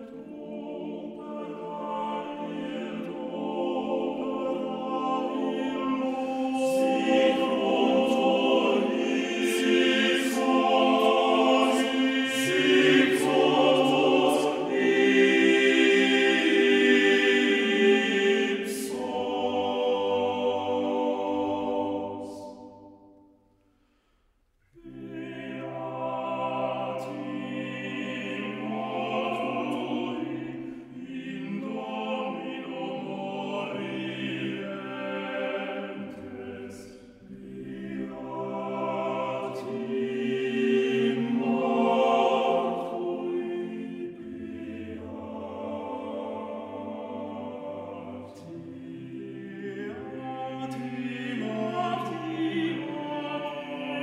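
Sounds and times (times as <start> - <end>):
male choir singing: 0.0 - 23.0, 24.7 - 54.0.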